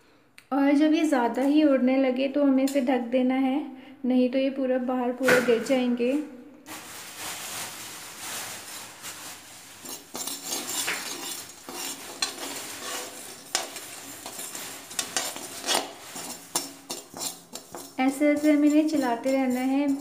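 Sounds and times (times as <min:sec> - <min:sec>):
metal spatula scraping metal pan: 0:09.7 - 0:20.0.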